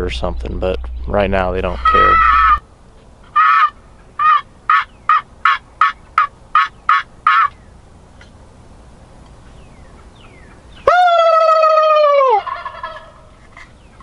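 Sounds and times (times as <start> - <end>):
turkey yelps: 1.7 - 2.6, 3.3 - 7.6, 10.0 - 14.0.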